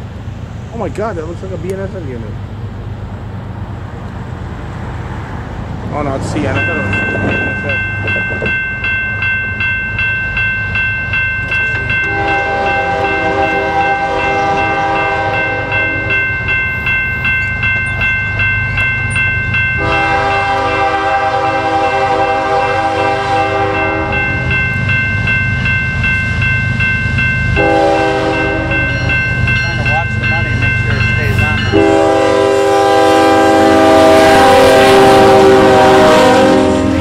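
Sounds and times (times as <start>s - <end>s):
train rumble: 0.0s - 37.0s
electronic crossing bell ringing: 6.3s - 32.4s
locomotive air horn blasts: 12.1s - 16.1s, 19.8s - 24.2s, 27.6s - 29.0s, 31.4s - 37.0s.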